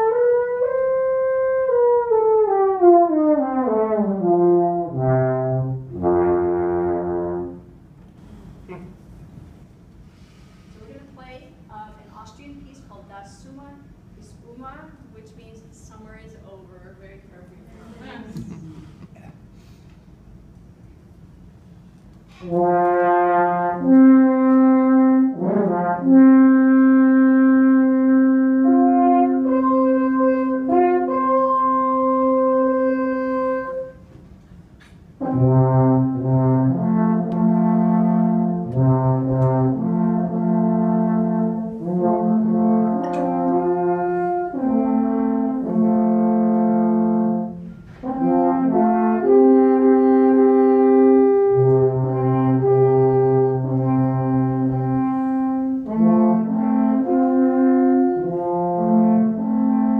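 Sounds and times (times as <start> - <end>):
wooden horns playing held notes: 0.0 - 8.9, 22.4 - 34.3, 35.2 - 59.9.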